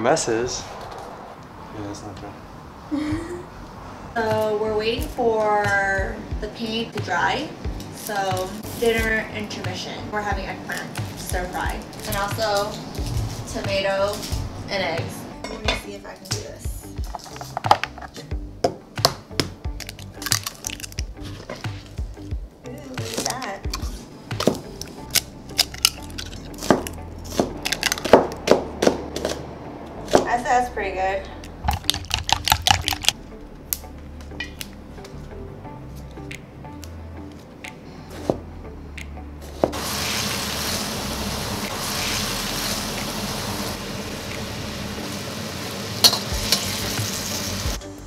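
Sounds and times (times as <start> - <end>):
eggs cracking on bowl rim: 19.8 - 21.1, 25.1 - 27.0, 31.4 - 33.2
eggplant sizzling in hot oil: 39.8 - 47.8.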